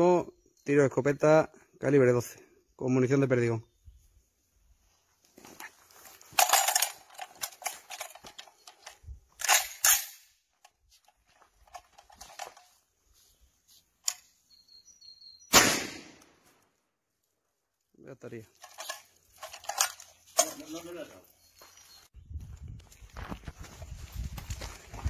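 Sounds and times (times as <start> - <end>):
shotgun blast: 15.5 - 16.4.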